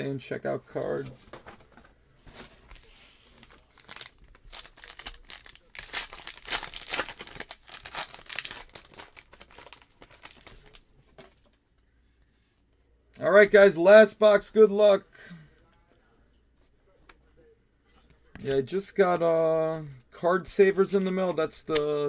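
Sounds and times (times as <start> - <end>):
foil wrapper tearing and crinkling: 3.4 - 10.8.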